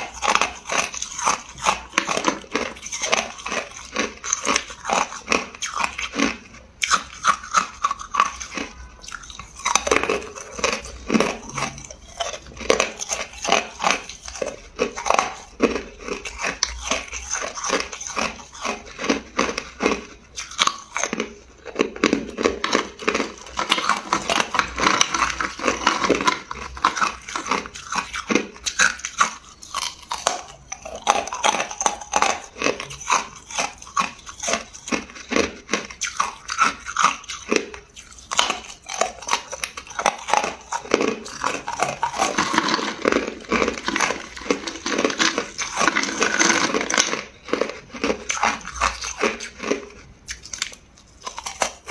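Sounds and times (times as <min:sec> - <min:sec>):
ice being chewed: 0:00.0 - 0:51.9.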